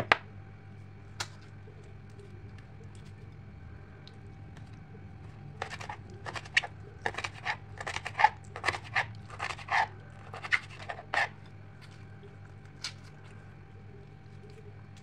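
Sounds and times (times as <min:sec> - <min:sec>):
knife cutting pepper on board: 0:05.6 - 0:11.3.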